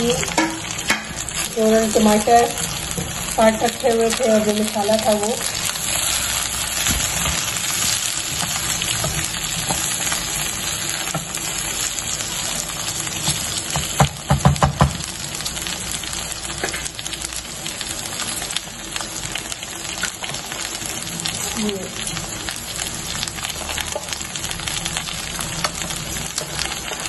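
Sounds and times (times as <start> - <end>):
vegetables sizzling in oil: 0.0 - 27.0
spatula knocking on pan: 0.3 - 1.2, 13.7 - 15.0.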